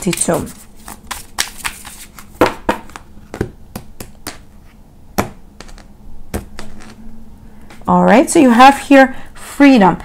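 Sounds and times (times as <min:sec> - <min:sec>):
cards shuffling and snapping: 0:00.0 - 0:02.3.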